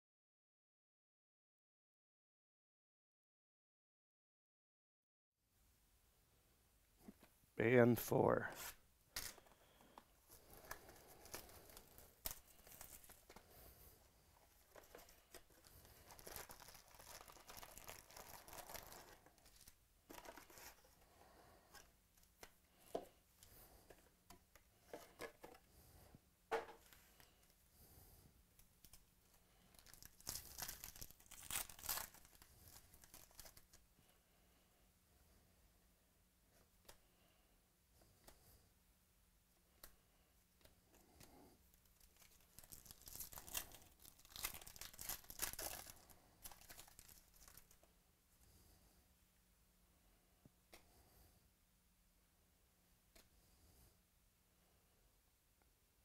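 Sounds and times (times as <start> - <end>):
foil wrappers tearing and crinkling: 10.6 - 13.4, 14.6 - 20.8, 29.7 - 33.7, 41.9 - 47.8.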